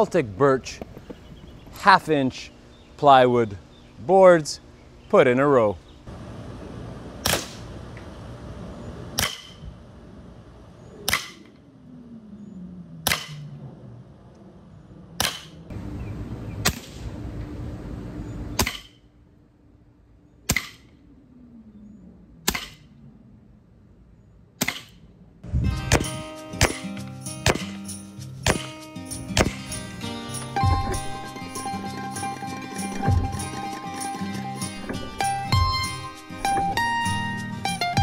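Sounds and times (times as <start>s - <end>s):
air pistol shots: 7.2s - 7.7s, 11.1s - 11.5s, 25.9s - 27.8s, 28.4s - 28.8s, 29.4s - 29.8s.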